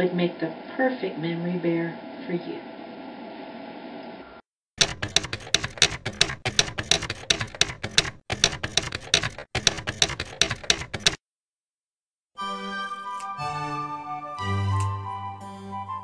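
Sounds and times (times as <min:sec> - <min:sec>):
typewriter key clacks: 0:04.8 - 0:11.2.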